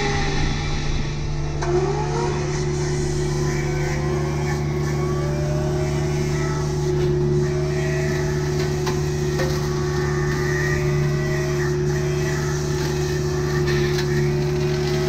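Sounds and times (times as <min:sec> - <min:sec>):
diesel engine low drone: 0:00.0 - 0:15.0
brush cutter head humming: 0:01.6 - 0:15.0.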